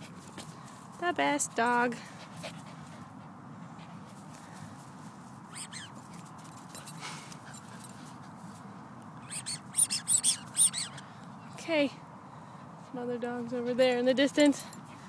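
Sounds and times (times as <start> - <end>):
dog whining: 5.5 - 5.9, 9.2 - 11.0.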